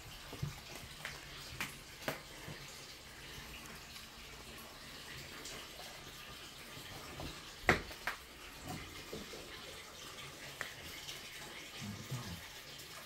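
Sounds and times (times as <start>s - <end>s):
tap water running into bath: 0.0s - 13.0s.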